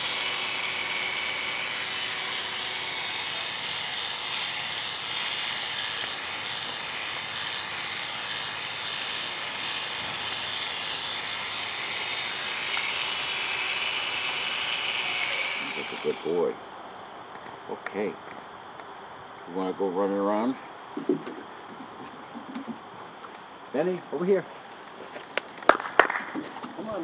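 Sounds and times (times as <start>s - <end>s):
electric clippers buzzing: 0.0s - 16.5s.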